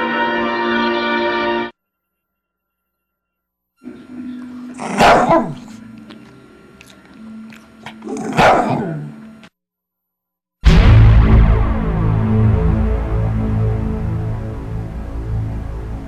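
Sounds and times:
dog barking: 0:04.8 - 0:05.8, 0:07.9 - 0:09.2
low steady hum: 0:10.7 - 0:16.0.

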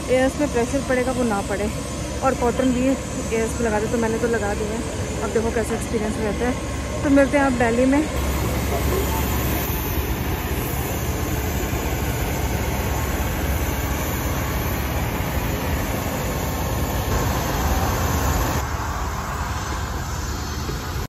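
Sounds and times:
aircraft engine rumbling: 0:00.0 - 0:21.0.

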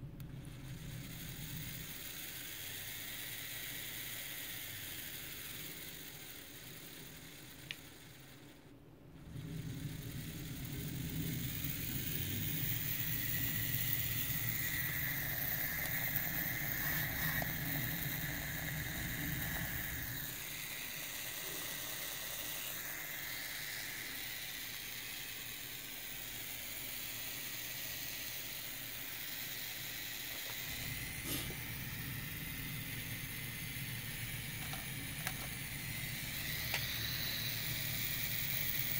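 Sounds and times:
geared motor whining: 0:00.0 - 0:38.9.

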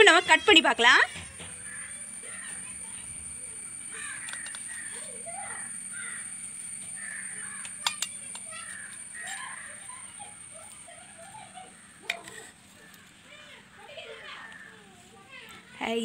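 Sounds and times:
crows cawing: 0:01.4 - 0:02.9, 0:03.8 - 0:10.1, 0:11.6 - 0:14.9.

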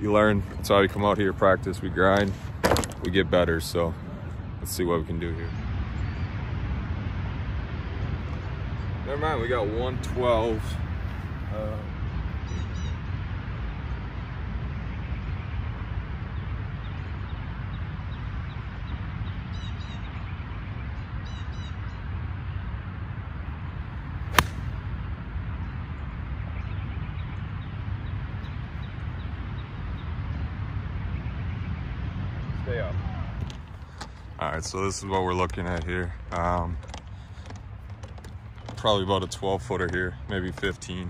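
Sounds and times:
low outdoor rumble: 0:00.0 - 0:41.0
golf club striking ball: 0:24.3 - 0:24.8.

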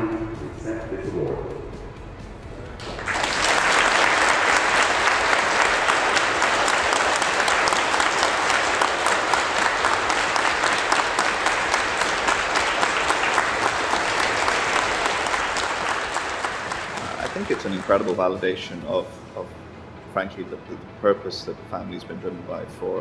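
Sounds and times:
audience applauding: 0:02.8 - 0:18.5.

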